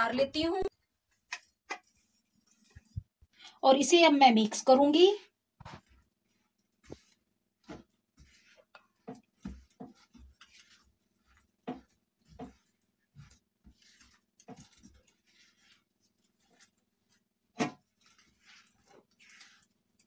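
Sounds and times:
wooden spatula scraping a pan: 0:00.0 - 0:20.0.

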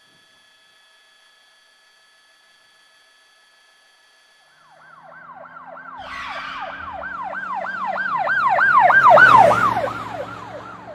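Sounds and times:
siren yelping: 0:04.5 - 0:10.9.

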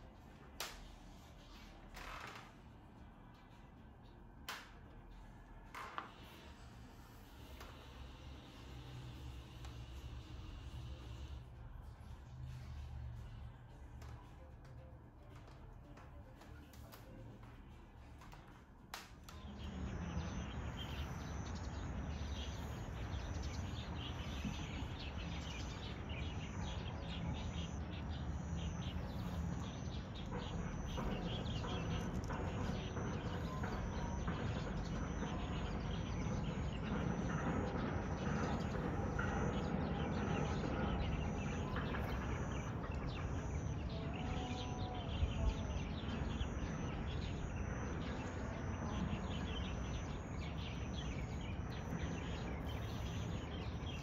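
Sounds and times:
faint hum: 0:00.0 - 0:54.0
small birds chirping: 0:19.3 - 0:54.0.

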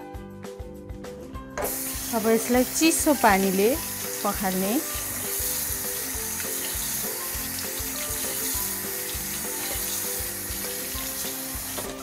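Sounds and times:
background music with steady beat: 0:00.0 - 0:12.0
tap water splashing into colander: 0:01.6 - 0:02.5, 0:03.3 - 0:12.0.

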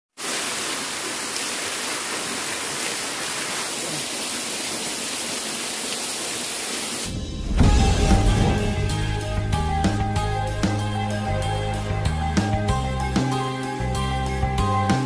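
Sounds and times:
waterfall rushing onto rocks: 0:00.1 - 0:11.9
background music: 0:07.1 - 0:15.0.

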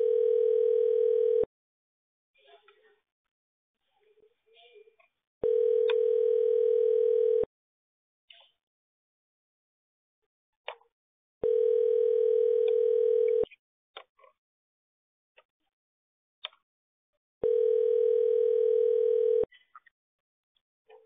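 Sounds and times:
telephone ringback tone: 0:00.0 - 0:01.5, 0:05.4 - 0:07.5, 0:11.4 - 0:13.5, 0:17.4 - 0:19.5.

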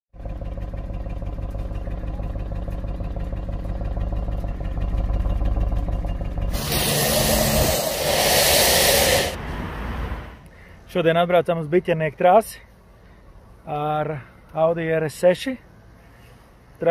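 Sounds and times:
car engine idling: 0:00.2 - 0:09.4
high-pressure water jet hissing: 0:06.5 - 0:09.4.

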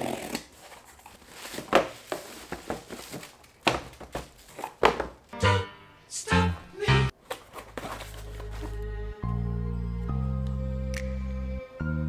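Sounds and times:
cardboard knocks and crinkles: 0:00.6 - 0:05.3, 0:07.2 - 0:08.8
background music: 0:05.3 - 0:07.2, 0:07.8 - 0:12.0.

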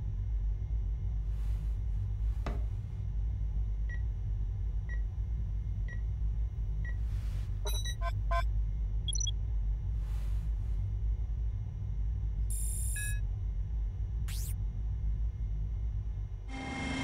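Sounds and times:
low electronic hum: 0:00.0 - 0:17.0
flurry of console bleeps: 0:07.7 - 0:08.4, 0:09.1 - 0:09.3, 0:12.5 - 0:13.2
soft computer beep: 0:07.7 - 0:08.4, 0:09.1 - 0:09.3, 0:12.5 - 0:13.2.

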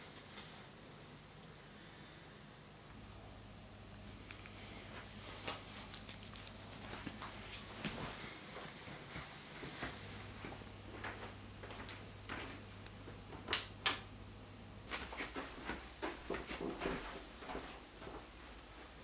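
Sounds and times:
footsteps walking: 0:04.3 - 0:13.5, 0:14.8 - 0:19.0.

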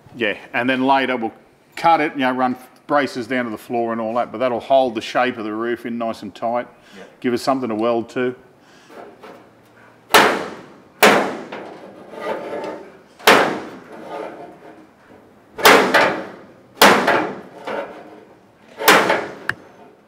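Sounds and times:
hammer striking sheet metal: 0:10.1 - 0:11.7, 0:13.2 - 0:13.9, 0:15.6 - 0:17.6, 0:18.8 - 0:19.6.

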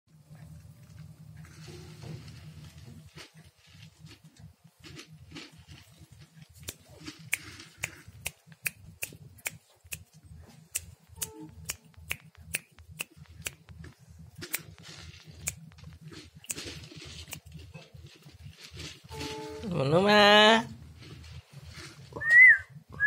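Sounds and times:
loose grains rustling: 0:00.2 - 0:23.0
puffed rice rattling in plastic bottle: 0:00.8 - 0:08.5, 0:12.8 - 0:22.8.

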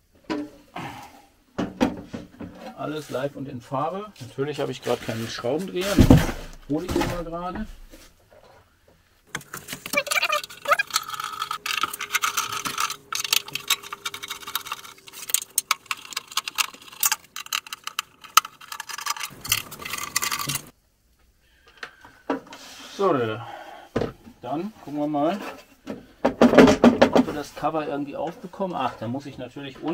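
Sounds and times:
tools clinking and rattling: 0:09.3 - 0:20.7.

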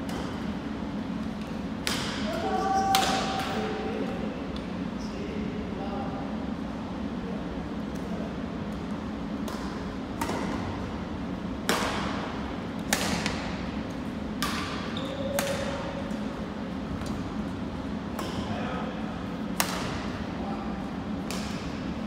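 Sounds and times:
steady low hum: 0:00.0 - 0:22.0
rackets hitting shuttlecock: 0:01.8 - 0:02.3, 0:11.6 - 0:12.2, 0:12.8 - 0:13.5, 0:14.3 - 0:16.2, 0:19.5 - 0:20.1, 0:21.2 - 0:21.8.

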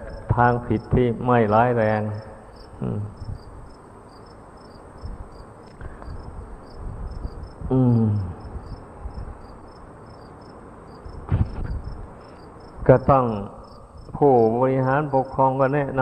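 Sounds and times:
man's voice: 0:00.0 - 0:03.2, 0:07.7 - 0:08.4, 0:12.9 - 0:16.0
crickets chirping: 0:00.0 - 0:16.0.

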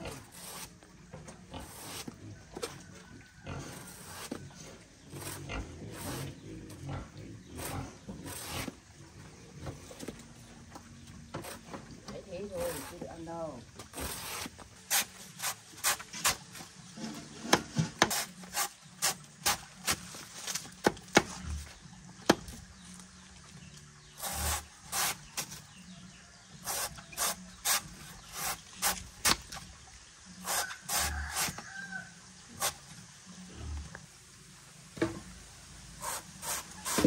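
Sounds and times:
sharp scraping strokes: 0:00.0 - 0:00.8, 0:01.6 - 0:02.2, 0:03.6 - 0:04.4, 0:05.1 - 0:06.4, 0:07.6 - 0:08.8, 0:13.9 - 0:16.4, 0:17.0 - 0:20.6, 0:24.2 - 0:25.6, 0:26.6 - 0:29.4, 0:30.4 - 0:31.6, 0:36.0 - 0:37.0.

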